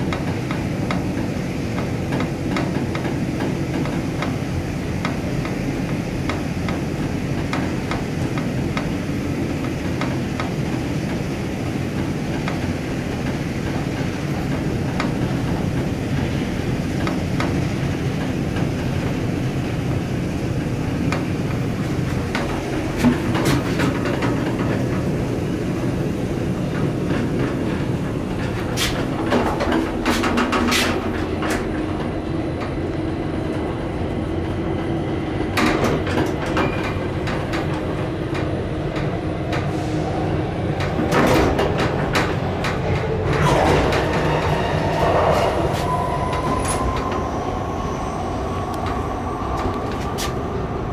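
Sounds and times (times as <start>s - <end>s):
elevator cab rumbling: 0.0s - 50.9s
elevator doors opening: 19.9s - 33.8s, 35.1s - 50.9s.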